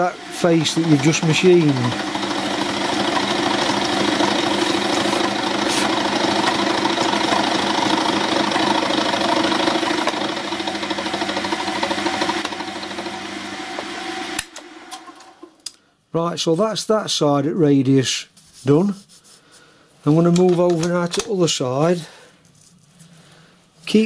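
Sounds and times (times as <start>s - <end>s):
milling cutter rasping on iron: 0.0s - 6.7s
milling machine motor hum: 0.0s - 15.5s.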